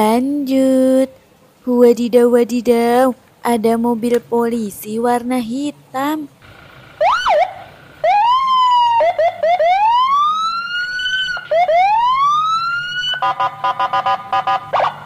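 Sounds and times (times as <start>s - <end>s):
toy siren wailing: 7.0s - 15.0s.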